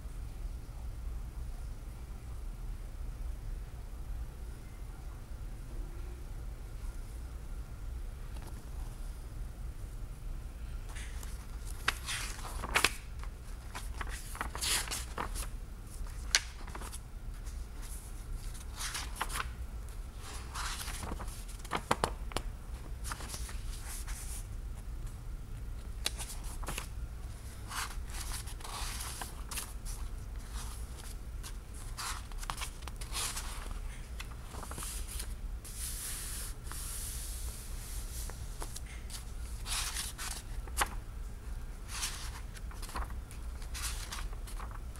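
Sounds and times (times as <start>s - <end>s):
book pages turning: 10.9s - 19.6s, 20.2s - 24.9s, 25.8s - 37.4s, 38.1s - 41.0s, 41.8s - 44.9s.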